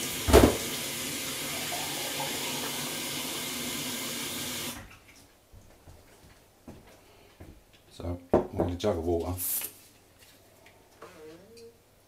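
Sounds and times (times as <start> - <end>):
tap water running into container: 0.0 - 4.9.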